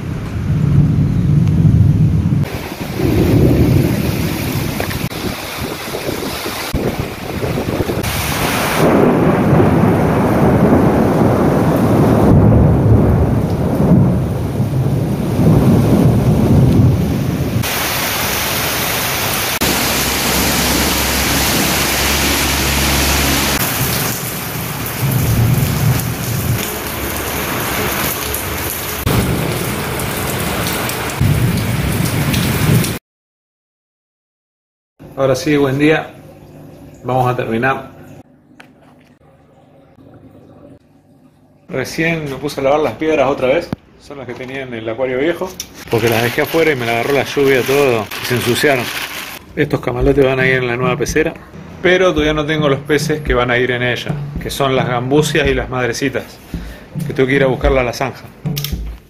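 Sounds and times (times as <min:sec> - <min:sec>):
steady rain: 0:00.0 - 0:33.0, 0:45.8 - 0:49.5
thunder rumbling: 0:00.0 - 0:33.0, 0:45.8 - 0:59.0.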